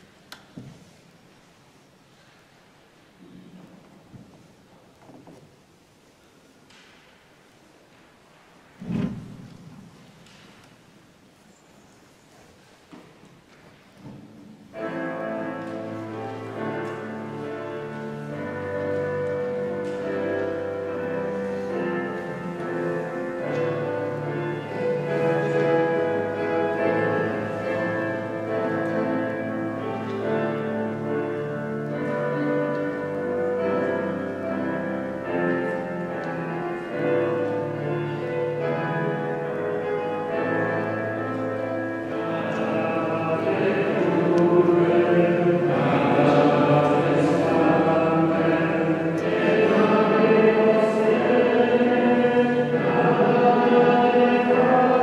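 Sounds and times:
organ-like keyboard playing chords: 14.8 - 55.0.

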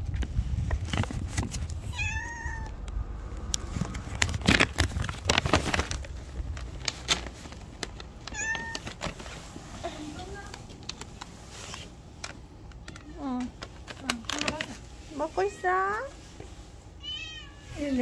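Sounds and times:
cat meowing: 1.9 - 2.8, 8.3 - 8.9, 17.0 - 17.8
clicks and rustling: 2.8 - 14.9.

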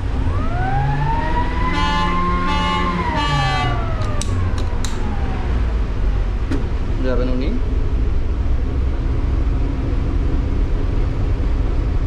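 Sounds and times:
siren winding up and down: 0.2 - 5.7
horn-like blast: 1.7 - 3.8
steady low rumble: 3.8 - 12.0.

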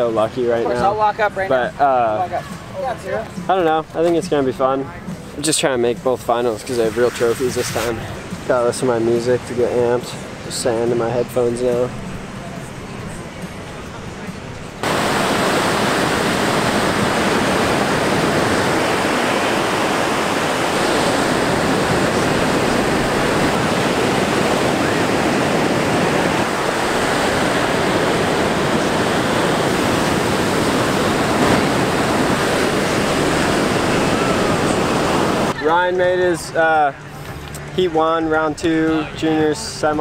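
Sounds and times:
ocean waves breaking: 5.1 - 35.9.

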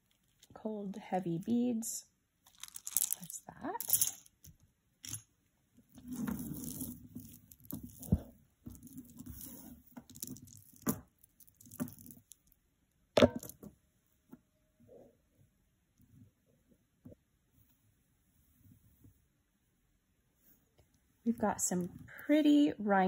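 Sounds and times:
necklace rustling: 2.4 - 12.6
metal chain clicks: 2.5 - 4.3.

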